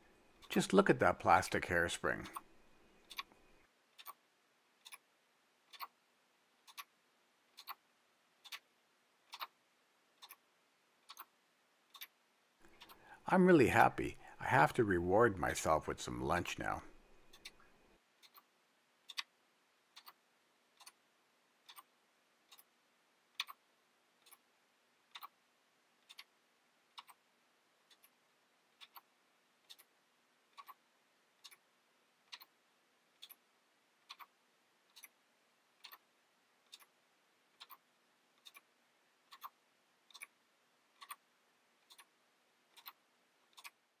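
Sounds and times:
plastic clock ticking: 1.4 - 4.2, 4.8 - 6.0, 6.6 - 9.6, 10.2 - 13.0, 18.2 - 20.2, 20.8 - 21.0, 21.6 - 23.6, 24.2 - 24.5, 25.1 - 25.4, 26.0 - 30.8, 31.4 - 32.6, 33.2 - 35.2, 35.8 - 43.9.

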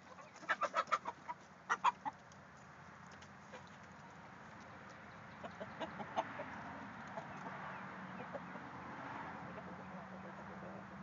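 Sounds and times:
hens clucking: 0.0 - 2.4, 3.4 - 4.2, 5.3 - 8.7, 9.4 - 10.9.

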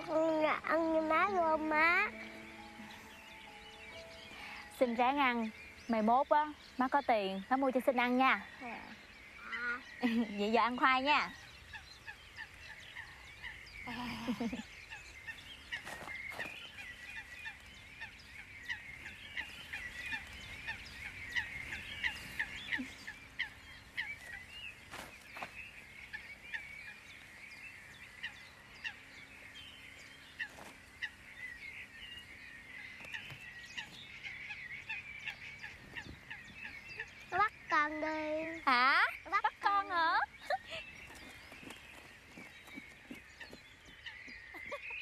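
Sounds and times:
birds chirping: 0.0 - 45.0.

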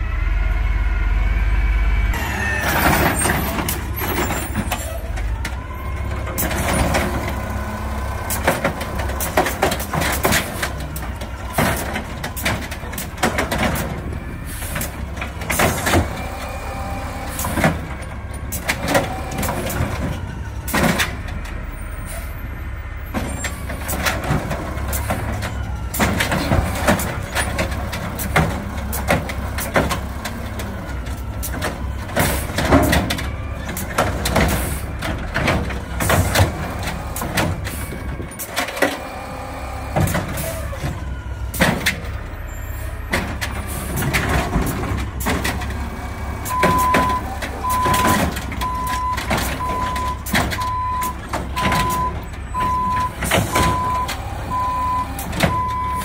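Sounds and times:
beeping alarm: 0.0 - 6.1, 46.5 - 56.0
garbage truck idling: 0.0 - 56.0
trash cart and arm banging: 2.2 - 22.3, 23.0 - 56.0.

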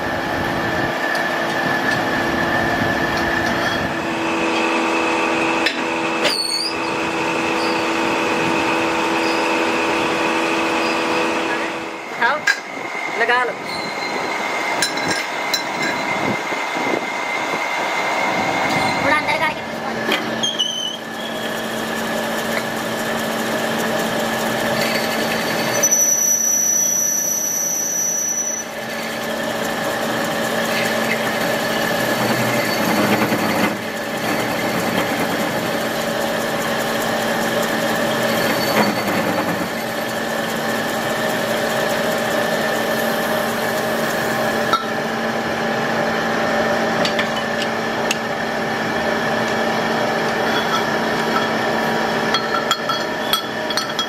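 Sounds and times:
metal lathe humming: 0.0 - 54.0
high squeal: 3.5 - 4.1, 6.2 - 8.0, 9.1 - 9.7, 10.7 - 12.0, 13.6 - 14.9, 15.5 - 19.3, 20.3 - 21.8, 24.8 - 29.1, 38.0 - 39.2.

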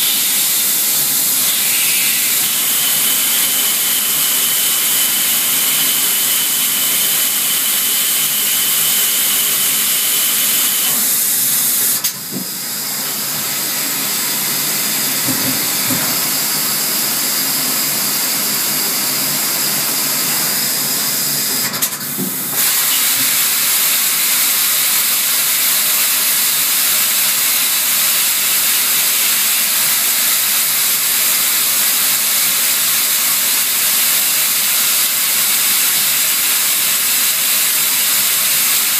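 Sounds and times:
thin high whine: 0.0 - 4.1
lathe hissing: 0.0 - 12.0.

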